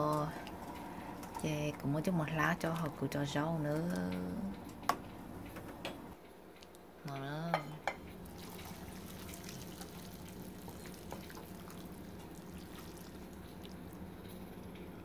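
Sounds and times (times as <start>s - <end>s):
broth pouring into a bowl: 8.2s - 14.7s
liquid dripping and splashing: 8.2s - 14.8s.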